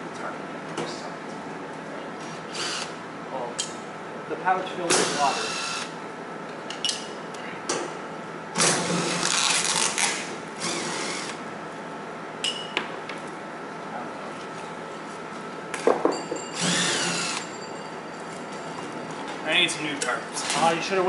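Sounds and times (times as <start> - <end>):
cordless drill driving screws: 5.0 - 5.9, 16.6 - 17.5.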